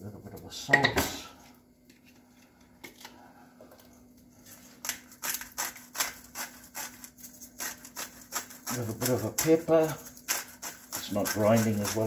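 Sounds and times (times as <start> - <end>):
salt grinder grinding: 4.6 - 12.0.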